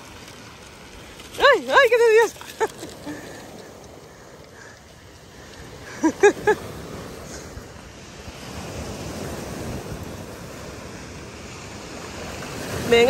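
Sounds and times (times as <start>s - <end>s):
waves breaking on pebble beach: 0.0s - 13.0s
wind on microphone: 5.3s - 13.0s.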